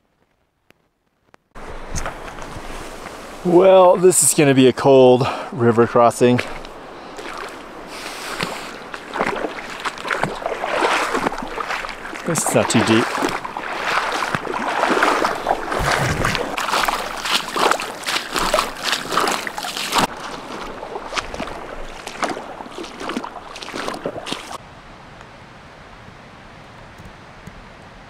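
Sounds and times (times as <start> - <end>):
feet splashing through water: 5.2 - 24.6.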